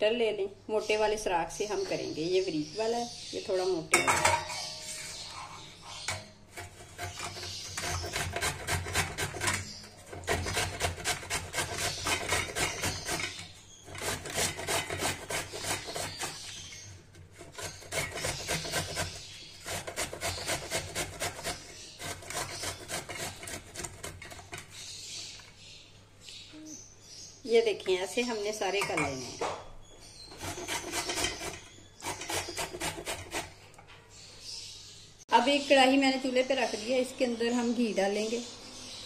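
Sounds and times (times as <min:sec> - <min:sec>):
gourd rasping on grater: 0:04.9 - 0:24.8, 0:30.3 - 0:33.6.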